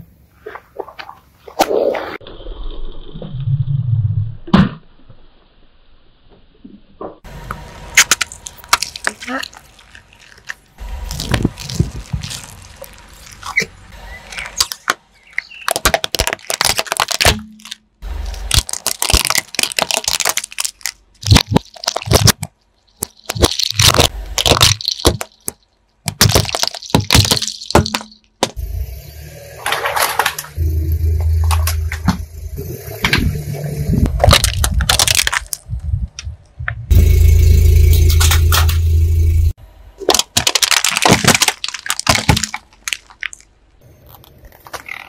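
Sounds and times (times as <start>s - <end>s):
low car engine hum: 7.2s - 45.0s
brittle objects cracking under tyre: 7.9s - 28.6s, 34.0s - 36.4s, 40.0s - 45.0s.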